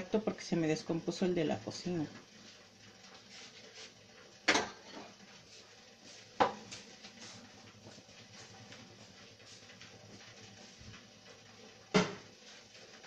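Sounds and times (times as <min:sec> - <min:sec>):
kitchenware clanking: 0:04.4 - 0:05.2.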